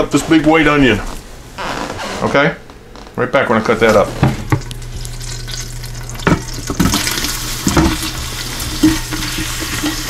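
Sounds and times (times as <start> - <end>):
onion sizzling in butter: 4.4 - 10.0.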